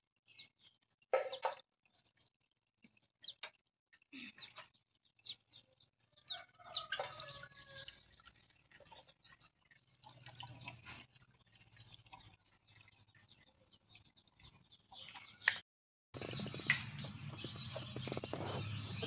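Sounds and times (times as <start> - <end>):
chickens clucking faintly: 4.0 - 15.6.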